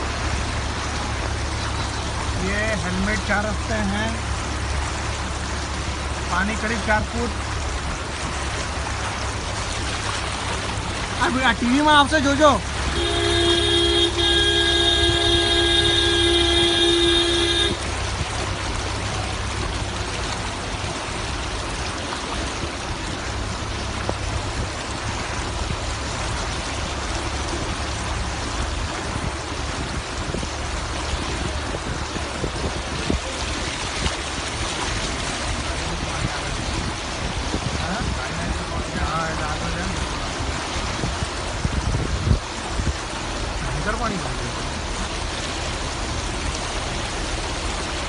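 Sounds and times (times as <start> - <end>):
car driving through floodwater: 0.0 - 48.0
low engine rumble: 0.0 - 48.0
vehicle horn held: 12.9 - 17.8.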